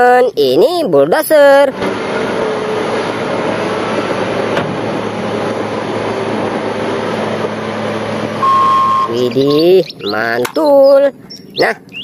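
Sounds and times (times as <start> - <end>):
diesel engine running: 1.3 - 12.0
short steady beep: 8.4 - 9.2.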